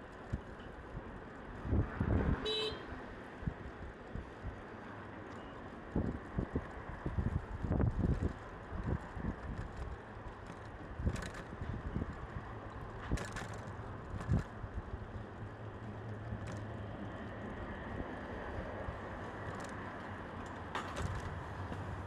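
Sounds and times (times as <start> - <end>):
steady traffic noise: 0.0 - 22.0
wind on microphone: 6.0 - 9.7.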